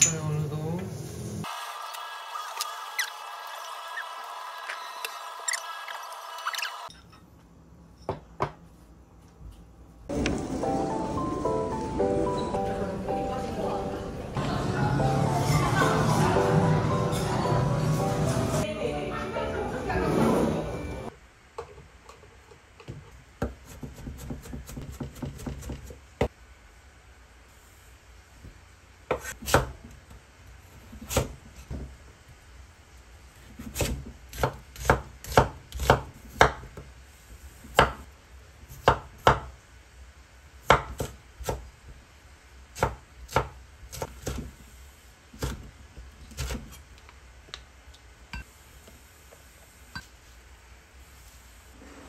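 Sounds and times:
knife chopping on wooden board: 23.4 - 26.0.

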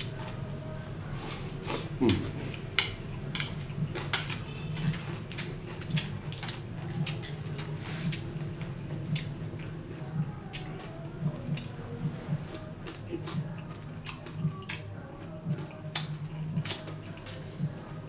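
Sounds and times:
chewing: 1.7 - 9.8, 10.4 - 18.0
chopsticks clicking on metal tray: 2.8 - 4.4.

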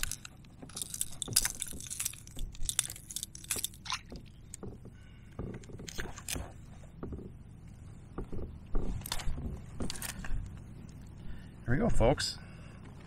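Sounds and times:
clicks and rattles of fishing lure: 0.0 - 4.6.

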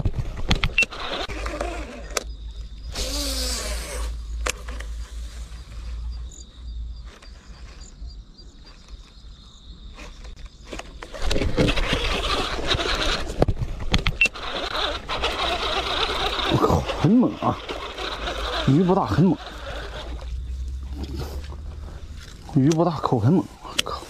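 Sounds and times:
fishing reel clicking commotion: 2.9 - 4.6, 14.1 - 20.3.

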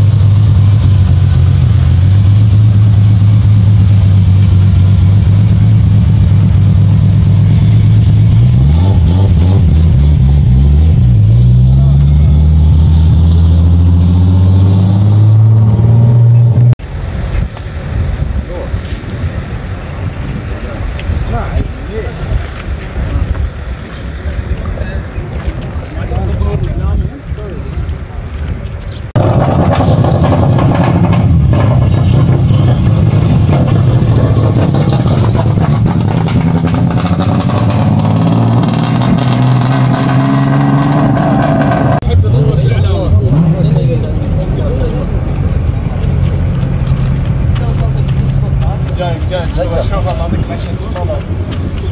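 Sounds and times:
car engine droning: 0.0 - 21.8, 29.2 - 51.9
engine revving hard: 8.3 - 16.8, 29.2 - 42.0.

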